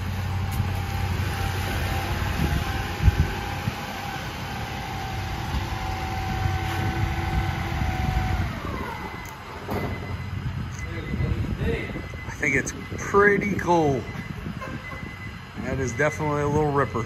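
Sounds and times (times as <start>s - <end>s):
small engine running with whine: 0.0s - 9.4s.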